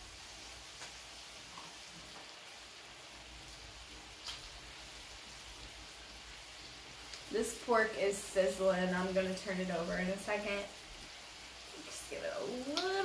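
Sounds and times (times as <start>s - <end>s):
pork sizzling on a grill: 0.0s - 13.0s
faint pops and crackles: 0.7s - 2.6s, 4.2s - 4.6s, 12.6s - 13.0s.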